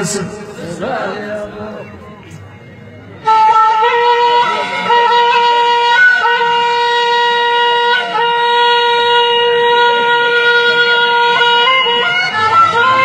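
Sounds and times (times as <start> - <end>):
reedy wind instrument melody: 0.0 - 13.0.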